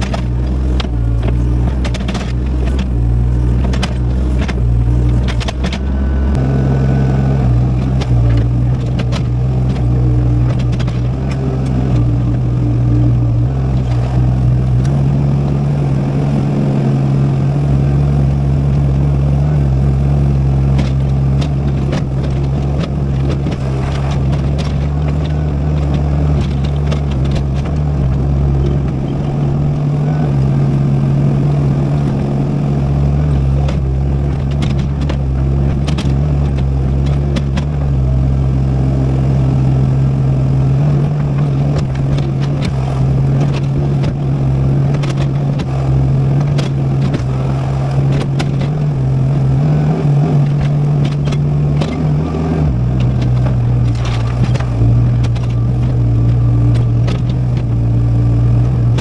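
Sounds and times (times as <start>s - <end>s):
clanks and knocks from digging: 0.0s - 2.9s, 3.6s - 5.9s, 20.7s - 27.8s, 33.2s - 37.9s
excavator diesel engine running: 0.0s - 59.0s.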